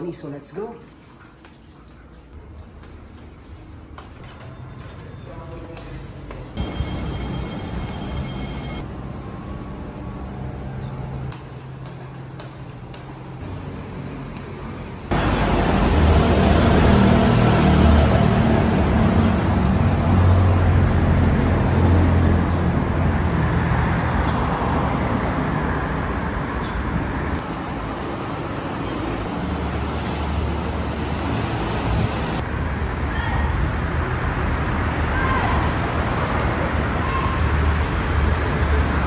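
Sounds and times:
engines rumbling: 0:03.8 - 0:39.0
tyres roaring: 0:13.5 - 0:27.4.

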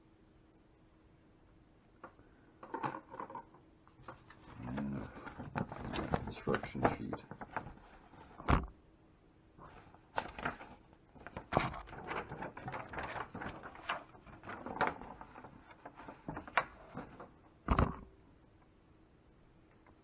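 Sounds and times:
paper rustling and crackling: 0:04.0 - 0:08.7, 0:09.6 - 0:17.9.

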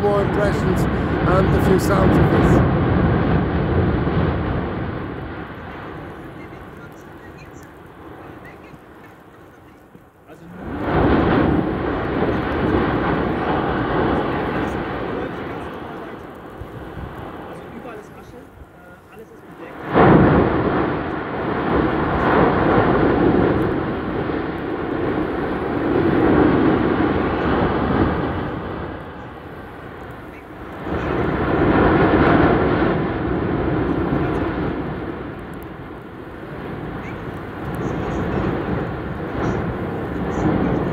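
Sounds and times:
volcano vent roaring: 0:00.0 - 0:09.3, 0:10.4 - 0:40.9.

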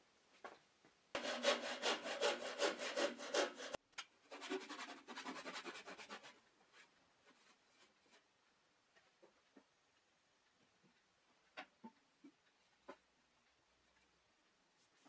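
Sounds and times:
hand saw cutting wood: 0:01.2 - 0:06.3.

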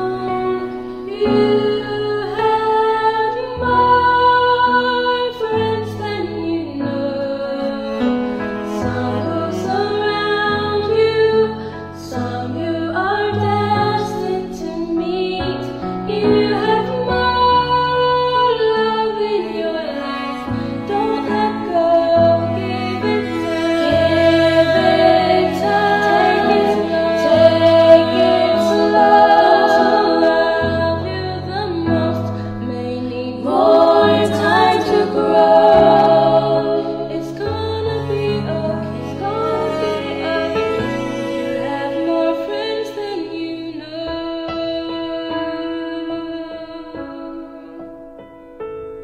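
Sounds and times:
instrumental backing: 0:00.0 - 0:44.7
woman singing: 0:00.0 - 0:47.9.

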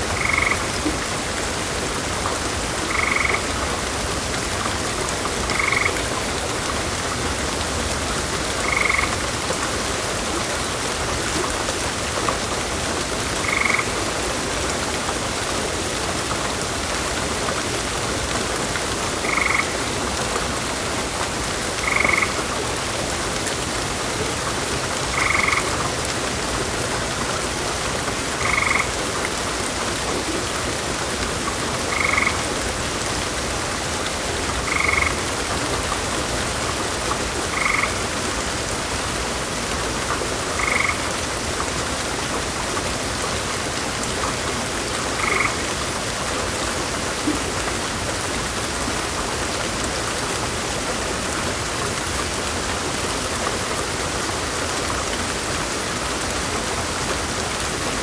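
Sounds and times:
heavy rain: 0:00.0 - 0:58.0
frog croaks: 0:00.2 - 0:00.7, 0:02.9 - 0:03.5, 0:05.5 - 0:06.1, 0:08.6 - 0:09.2, 0:13.4 - 0:13.9, 0:19.2 - 0:19.8, 0:21.8 - 0:22.4, 0:25.1 - 0:25.8, 0:28.4 - 0:29.0, 0:31.9 - 0:32.4, 0:34.7 - 0:35.2, 0:37.5 - 0:38.0, 0:40.6 - 0:41.1, 0:45.2 - 0:45.6.

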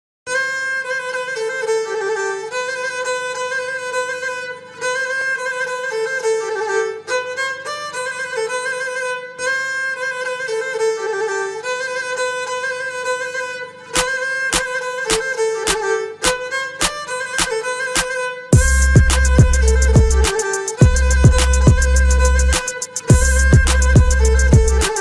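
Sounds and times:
violin slow melody: 0:00.3 - 0:25.0
sharp percussive beats: 0:14.0 - 0:25.0.

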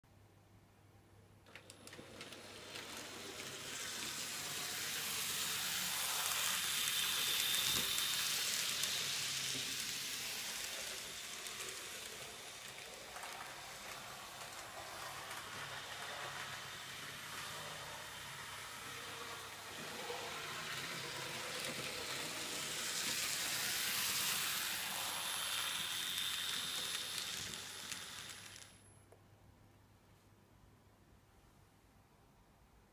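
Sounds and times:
model train rumbling: 0:01.8 - 0:28.8.

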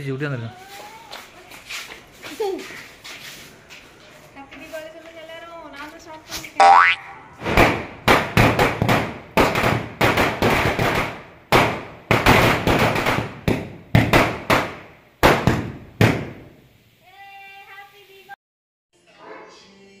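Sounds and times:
firecrackers banging: 0:06.4 - 0:16.9.

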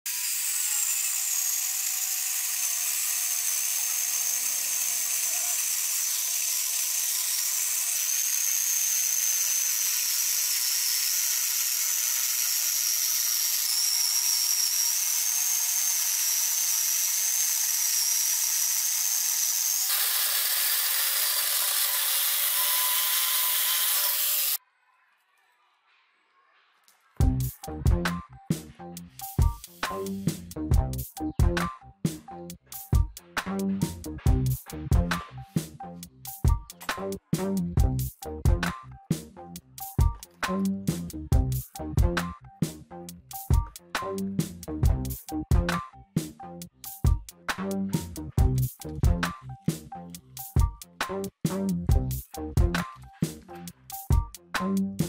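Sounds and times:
angle grinder motor whine: 0:00.1 - 0:24.6.

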